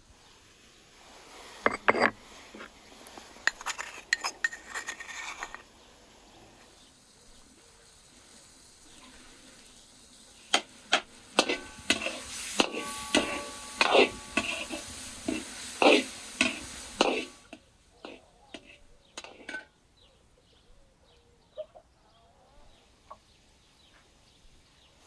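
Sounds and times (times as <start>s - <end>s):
wooden spoon scraping clay bowls: 1.6s - 5.8s, 10.4s - 19.8s
utensil clinking on cooking pot: 10.5s - 19.8s.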